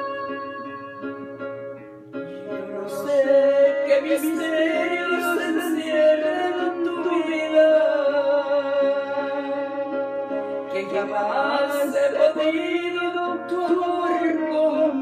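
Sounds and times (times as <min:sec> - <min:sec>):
karaoke backing track: 0:00.0 - 0:15.0
woman singing into microphone: 0:02.5 - 0:09.7.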